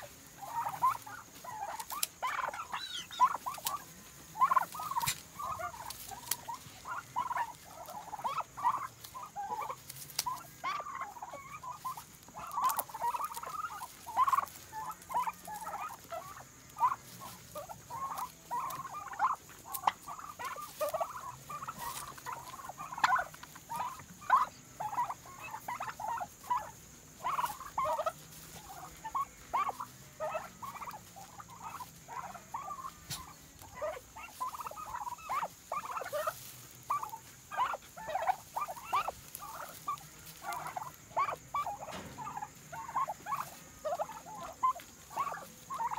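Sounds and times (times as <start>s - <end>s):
turkeys chirping: 0.0s - 45.9s.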